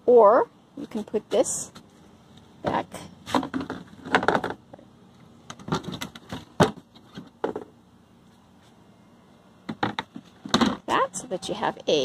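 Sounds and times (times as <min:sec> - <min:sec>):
plastic panels knocking: 0:03.4 - 0:04.6, 0:09.7 - 0:10.8.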